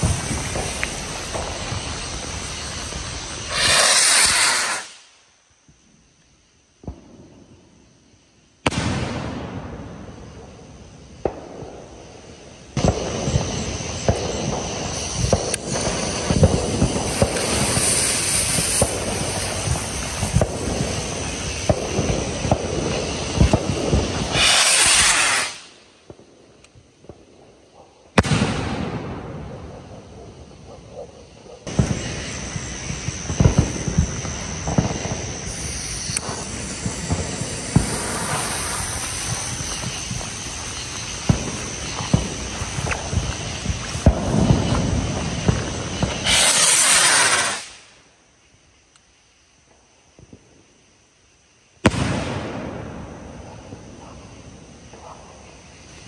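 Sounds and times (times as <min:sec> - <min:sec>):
firework bang: 0:00.0 - 0:05.1, 0:08.6 - 0:10.5, 0:12.8 - 0:25.7, 0:28.2 - 0:30.8, 0:31.6 - 0:47.8, 0:51.8 - 0:55.4
fireworks hissing burst: 0:00.0 - 0:05.9, 0:08.6 - 0:27.2, 0:28.1 - 0:48.2
fireworks crackling and popping: 0:00.0 - 0:51.0, 0:51.6 - 0:56.0.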